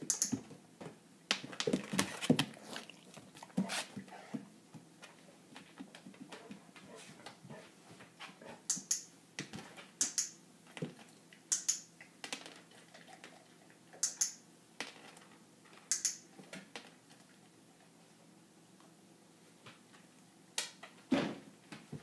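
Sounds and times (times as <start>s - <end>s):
clicker double snaps: 10.0s - 10.4s, 11.5s - 11.8s, 15.9s - 16.2s.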